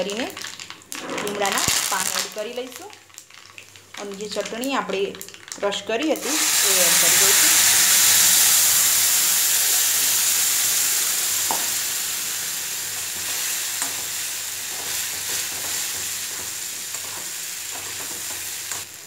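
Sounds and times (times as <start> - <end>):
paste sizzling in hot oil: 0.0 - 19.0.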